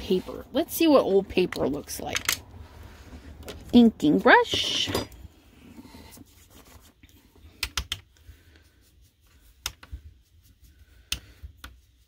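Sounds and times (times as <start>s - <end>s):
faint brushing: 5.4s - 7.5s, 8.2s - 12.0s.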